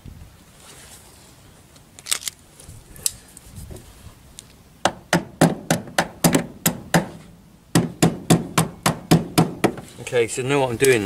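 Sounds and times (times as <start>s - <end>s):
hammer tapping metal pins: 7.8s - 9.9s.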